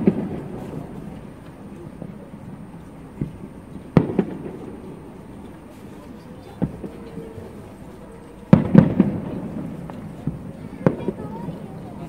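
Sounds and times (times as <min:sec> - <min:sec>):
firework shells bursting: 0:08.5 - 0:11.3.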